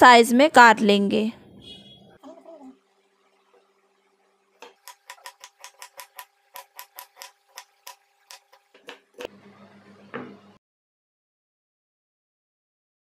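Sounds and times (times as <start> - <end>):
knife chopping on wooden board: 4.6 - 9.3.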